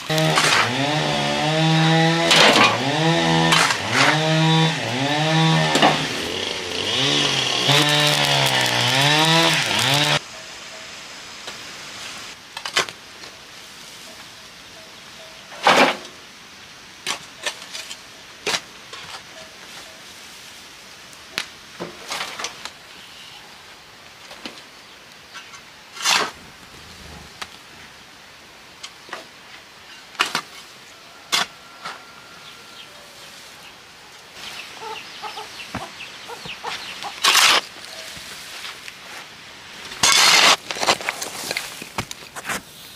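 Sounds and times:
hoe striking stony earth: 0.1 - 1.1, 2.2 - 2.8, 3.4 - 4.2, 5.6 - 10.2, 36.8 - 37.7, 39.9 - 42.7.

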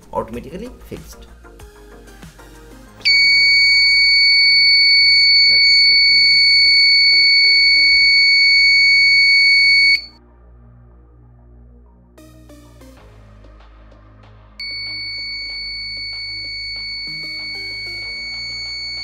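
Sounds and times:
high-pitched buzzer tone: 3.1 - 10.1, 14.6 - 19.0.

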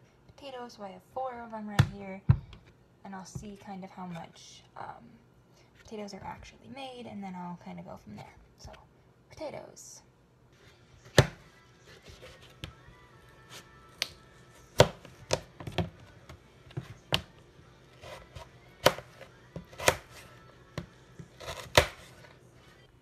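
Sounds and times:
knife chopping on plastic cutting board: 11.0 - 11.4, 14.7 - 17.4, 18.0 - 20.2, 20.8 - 22.2.

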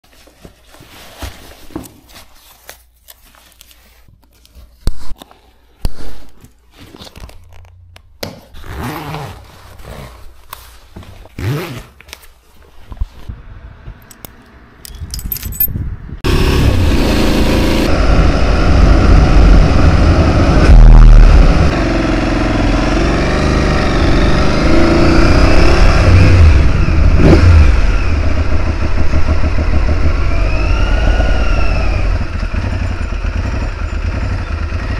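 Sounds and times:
riding gear rustling: 8.5 - 13.3, 14.8 - 15.7
boot buckles clicking: 14.9 - 15.7
motorcycle engine riding off: 16.2 - 34.9.

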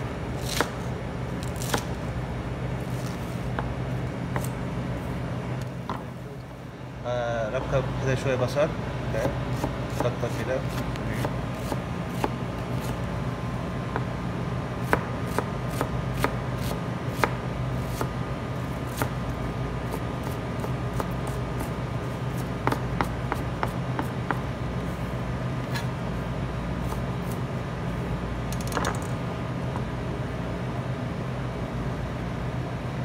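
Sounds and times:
steady low hum: 0.0 - 33.0
knife chopping on cutting board: 9.2 - 13.0, 14.8 - 18.1, 18.9 - 19.2, 19.9 - 21.7, 22.3 - 24.5.

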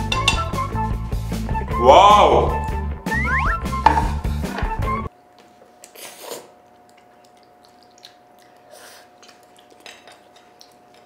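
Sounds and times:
background music: 0.0 - 5.1
child slurping and chewing noodles: 5.7 - 11.0.

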